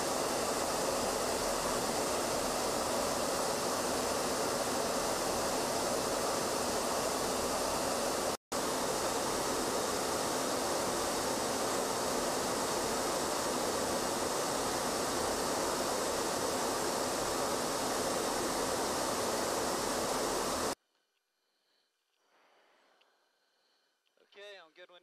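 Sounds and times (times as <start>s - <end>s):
aircraft cabin airflow and engine: 0.0s - 20.8s.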